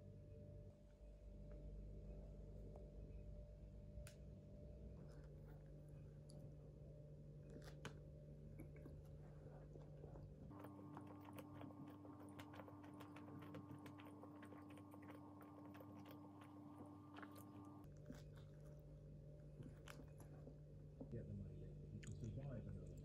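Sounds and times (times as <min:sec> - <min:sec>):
low steady hum: 0:00.0 - 0:23.0
chewing and biting sandwich: 0:07.4 - 0:21.2.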